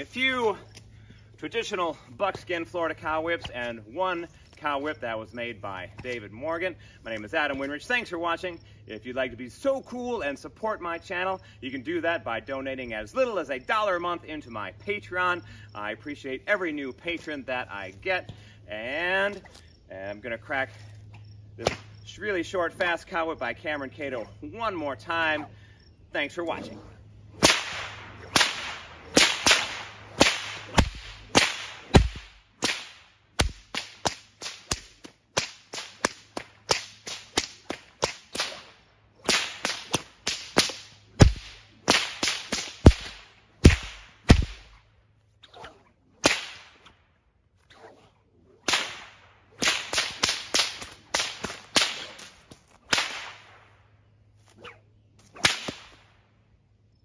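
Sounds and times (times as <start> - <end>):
whip cracking: 21.6 - 22.0, 27.3 - 44.8, 45.4 - 47.0, 47.6 - 53.7, 54.4 - 56.2.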